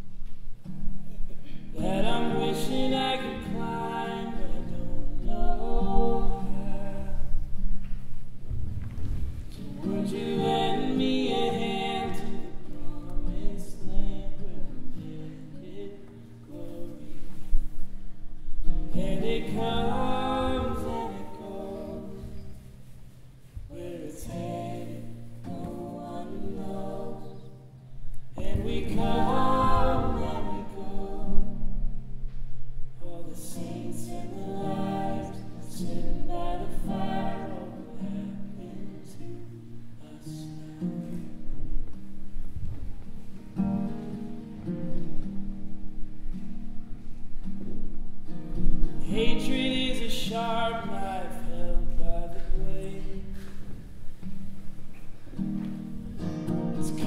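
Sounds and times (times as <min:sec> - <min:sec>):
voices singing in harmony: 0:01.7 - 0:07.7, 0:09.5 - 0:17.8, 0:18.8 - 0:32.1, 0:33.0 - 0:41.4, 0:49.0 - 0:53.6, 0:56.4 - 0:57.0.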